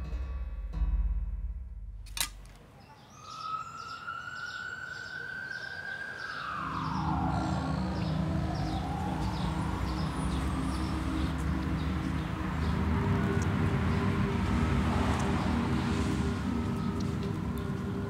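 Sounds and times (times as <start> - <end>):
low rumble of traffic: 0.0 - 18.0
siren wailing: 3.1 - 12.4.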